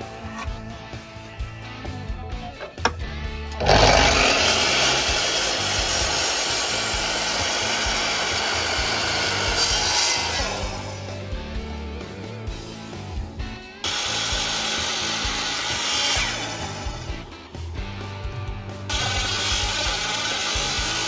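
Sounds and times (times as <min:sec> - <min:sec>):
light guitar music: 0:00.0 - 0:21.0
miter saw cutting wood: 0:03.6 - 0:17.8, 0:18.8 - 0:21.0.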